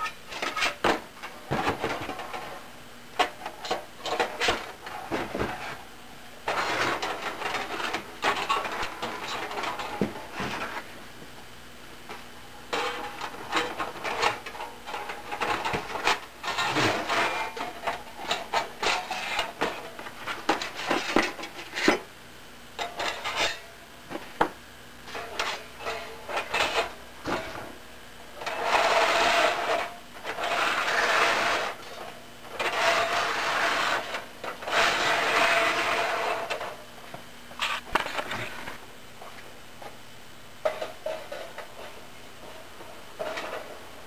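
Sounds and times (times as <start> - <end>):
metal plates scraping: 0.0 - 2.6, 3.2 - 5.8, 6.4 - 10.9, 12.7 - 22.1, 22.8 - 23.7, 25.1 - 27.7, 28.4 - 36.8, 43.2 - 43.8.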